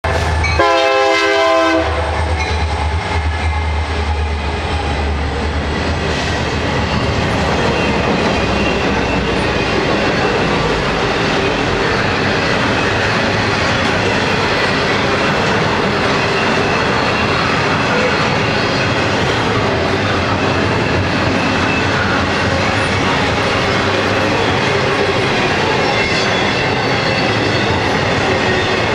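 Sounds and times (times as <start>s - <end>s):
train horn blast: 0.0s - 2.2s
train cars clickety-clack: 0.0s - 28.9s.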